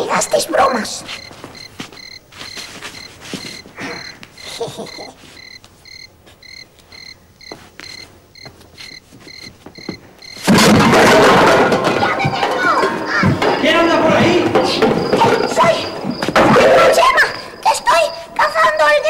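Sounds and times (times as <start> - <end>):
cricket chirping: 0.0 - 19.0
soft rustles: 1.0 - 4.4, 5.0 - 9.9.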